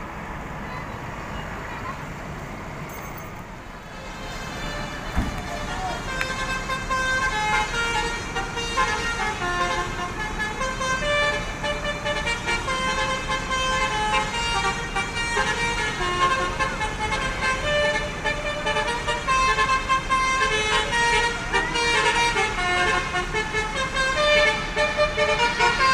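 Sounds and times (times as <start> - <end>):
bus engine rumble: 0.0 - 25.9
multi-tone bus horn tune: 3.3 - 25.9.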